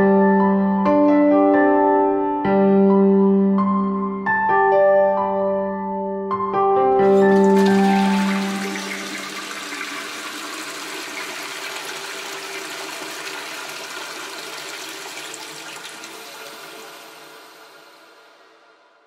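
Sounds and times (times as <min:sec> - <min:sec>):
toilet flushing: 0:07.0 - 0:19.0.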